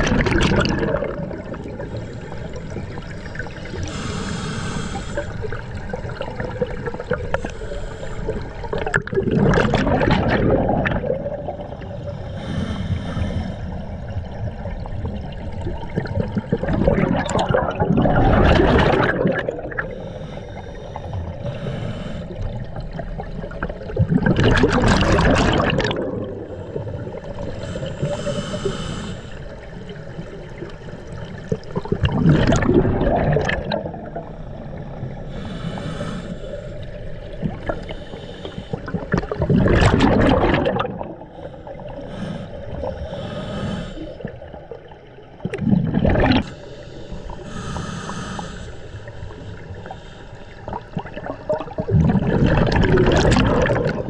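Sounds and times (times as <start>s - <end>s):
exhaled bubbles gushing underwater: 0.0s - 4.1s, 4.9s - 21.6s, 22.3s - 28.6s, 29.3s - 35.5s, 36.7s - 46.7s, 49.0s - 54.0s
hissing regulator inhalations: 3.7s - 5.7s, 7.2s - 8.8s, 12.2s - 14.0s, 19.8s - 22.7s, 27.4s - 29.8s, 34.1s - 39.2s, 41.2s - 44.4s, 46.4s - 51.0s.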